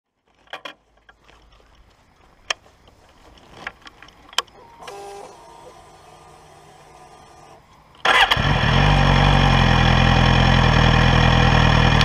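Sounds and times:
motorcycle handling clicks and knocks: 0:00.4 - 0:01.2
motorcycle starter whir: 0:04.4 - 0:12.0.

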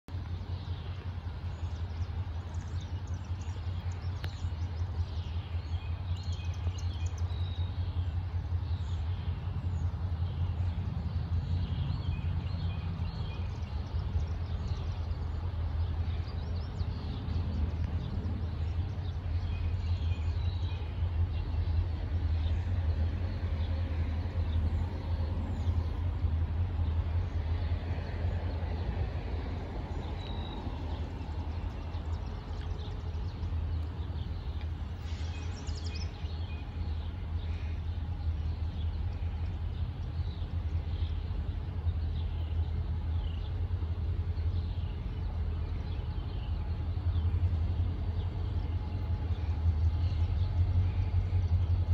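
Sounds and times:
diesel locomotives rumbling: 0:00.0 - 0:51.9
small birds chirping: 0:29.9 - 0:51.9.

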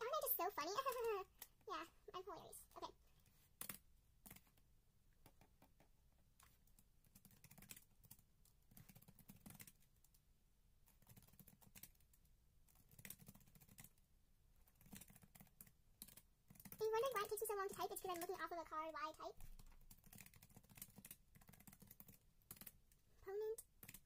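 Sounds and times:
slow typing on keyboard: 0:00.8 - 0:01.6, 0:03.2 - 0:04.6, 0:05.2 - 0:18.5, 0:19.4 - 0:24.0.

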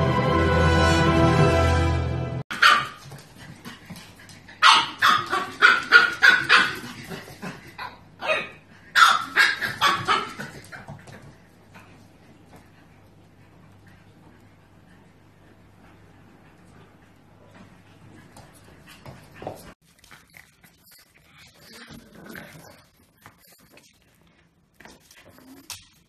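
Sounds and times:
background music: 0:00.0 - 0:02.4
puppy barking: 0:02.5 - 0:03.2, 0:04.6 - 0:07.0, 0:07.8 - 0:10.7.

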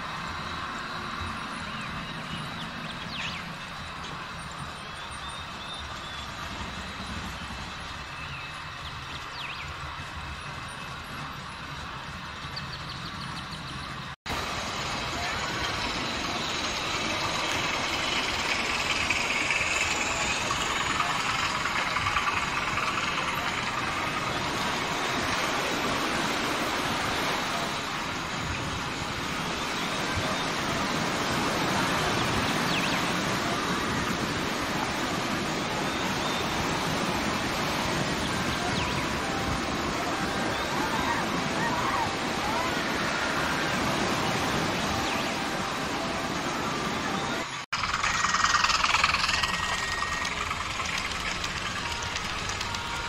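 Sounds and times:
model train clattering: 0:15.0 - 0:26.0, 0:47.8 - 0:53.0.

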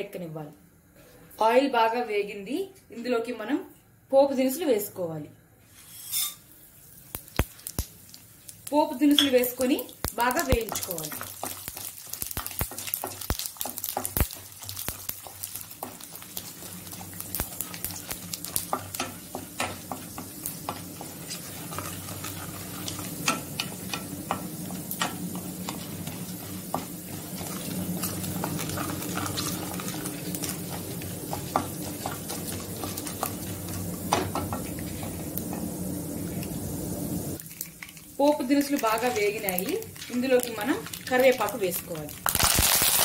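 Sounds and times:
spices sizzling in hot oil: 0:05.7 - 0:43.0
wooden spatula stirring: 0:10.3 - 0:36.5, 0:38.8 - 0:41.8.

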